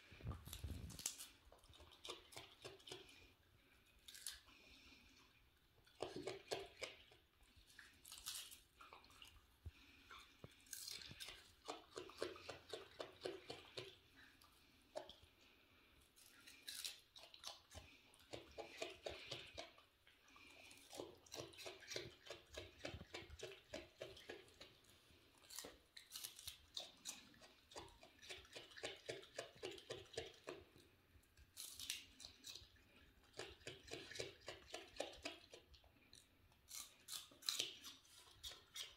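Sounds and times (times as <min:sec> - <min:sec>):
raccoon chewing crunchy cabbage: 0:00.0 - 0:38.9.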